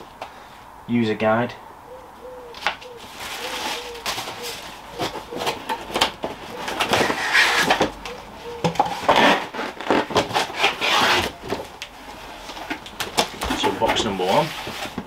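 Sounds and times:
cardboard scraping and rustling: 2.9 - 8.1, 8.8 - 15.0.

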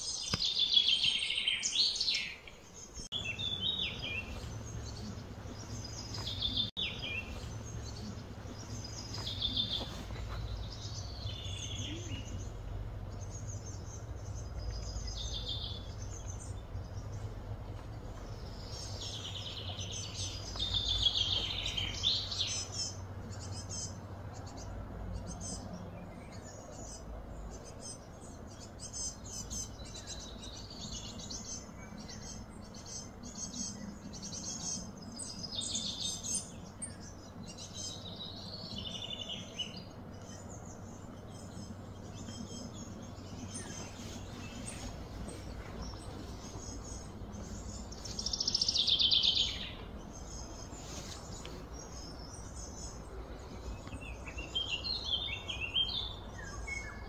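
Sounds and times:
birds chirping and calling: 0.0 - 57.0
low background hum: 1.9 - 57.0.

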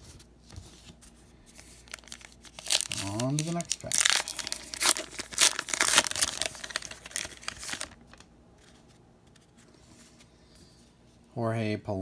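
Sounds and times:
wrapper tearing and crinkling: 1.6 - 8.3.

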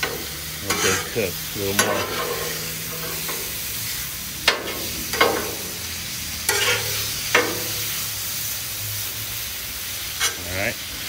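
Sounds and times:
metal spatula scraping griddle: 0.0 - 8.2, 10.0 - 10.6
liver and onions sizzling: 0.0 - 11.0.

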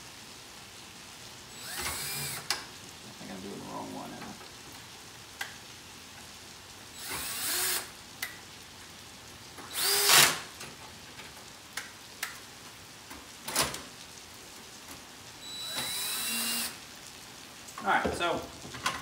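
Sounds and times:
cordless drill motor spinning: 1.5 - 2.6, 7.0 - 7.9, 9.7 - 10.4, 15.4 - 16.8.

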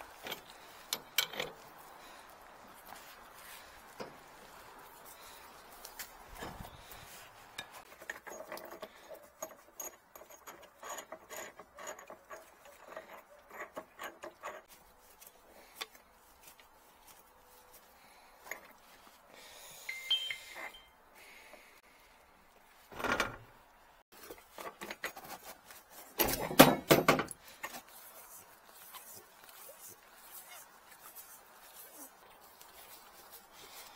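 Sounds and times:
metal pipe fittings clinking: 0.0 - 1.8, 7.4 - 14.7, 19.8 - 21.0.

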